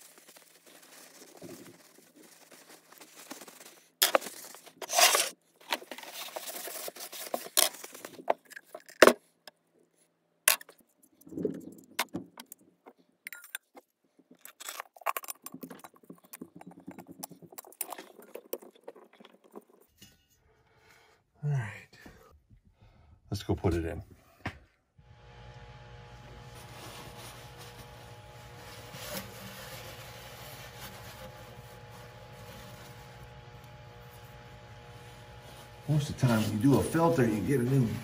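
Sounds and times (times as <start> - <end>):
shop rag rustling: 26.3 - 38.0.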